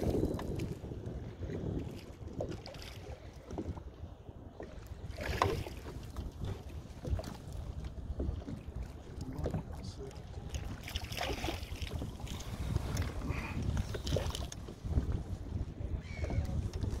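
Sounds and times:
water lapping at kayak: 0.0 - 17.0
wind buffeting microphone: 0.0 - 17.0
small knocks and splashes: 5.1 - 7.5, 8.1 - 13.1.

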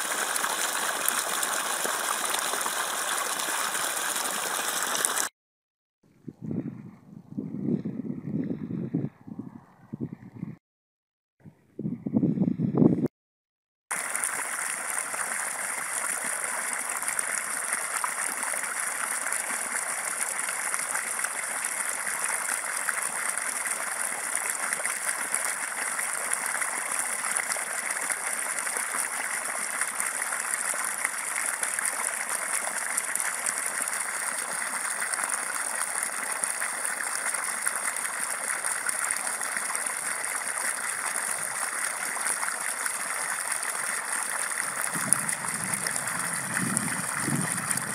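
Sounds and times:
water gushing from hose: 0.0 - 5.3, 13.9 - 47.9
water splashing onto standing water: 0.0 - 5.3, 13.9 - 47.9.

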